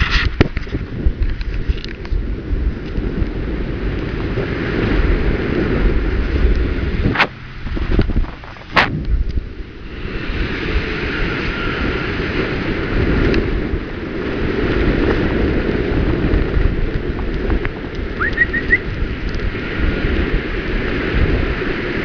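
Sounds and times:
freeway traffic rumble: 0.0s - 22.0s
wind buffeting microphone: 0.0s - 22.0s
bird chirping: 18.2s - 18.8s.

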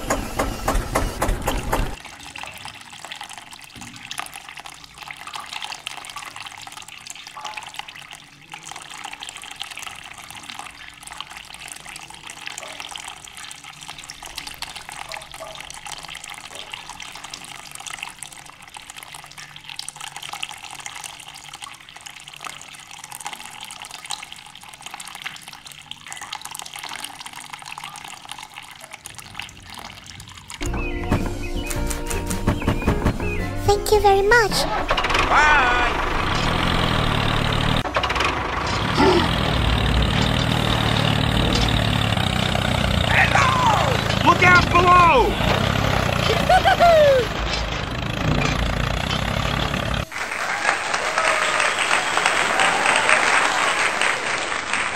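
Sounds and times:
water trickling into a puddle: 2.0s - 30.6s, 35.0s - 50.2s
low mechanical rumble: 34.7s - 50.1s.

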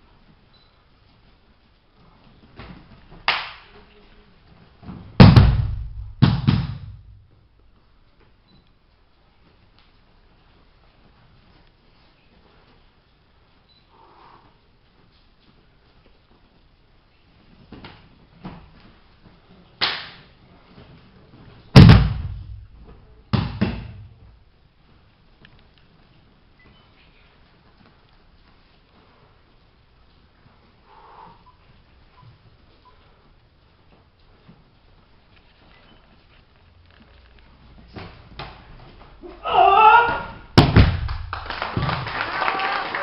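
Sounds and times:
hands slapping mat: 2.4s - 3.7s, 4.8s - 7.1s, 17.5s - 19.0s, 19.8s - 20.3s, 21.8s - 24.3s, 40.6s - 42.1s
sharp smack: 3.3s - 3.7s, 5.2s - 7.0s, 19.8s - 20.2s, 21.8s - 22.6s
body thudding onto mats: 4.8s - 7.3s, 21.8s - 24.2s.

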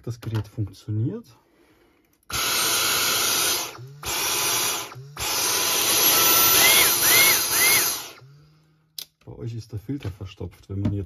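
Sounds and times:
vacuum cleaner motor running: 2.3s - 8.5s
short rising and falling whistles: 6.1s - 8.2s.

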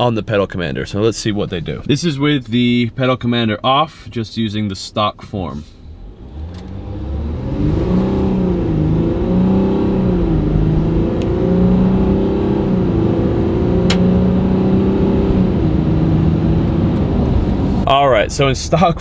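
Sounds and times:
diesel truck accelerating: 5.7s - 19.0s.

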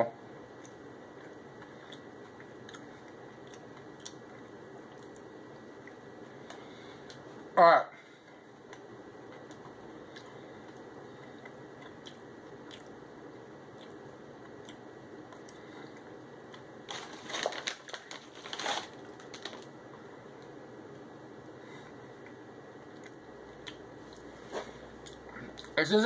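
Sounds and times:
crunchy eating noises: 0.5s - 7.3s, 8.0s - 20.6s, 21.6s - 25.8s
person chewing: 0.6s - 7.2s, 8.6s - 13.0s, 13.7s - 16.7s, 22.2s - 24.3s.

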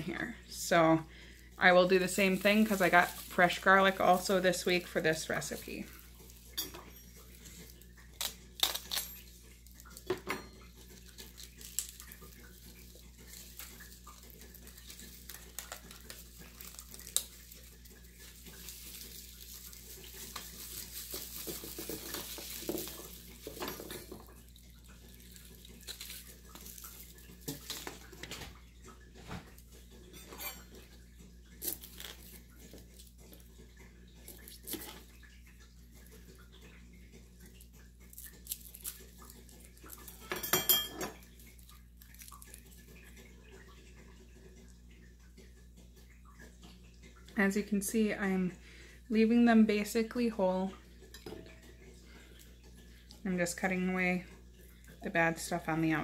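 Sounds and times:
mesh bag rustling: 1.6s - 6.5s, 11.0s - 24.2s.

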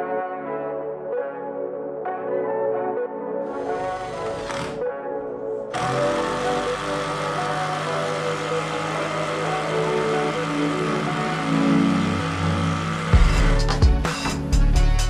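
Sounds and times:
held synth chords: 3.5s - 14.5s
heavy low beat: 13.1s - 15.0s.

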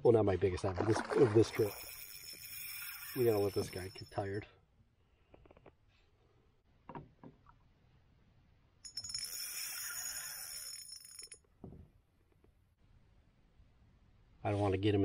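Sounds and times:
fishing reel drag buzzing: 1.5s - 4.0s, 9.0s - 11.2s.

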